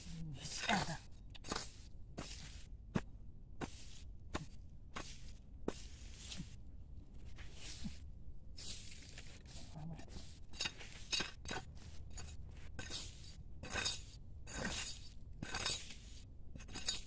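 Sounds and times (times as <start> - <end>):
machete chopping sandy soil: 0.7 - 6.5.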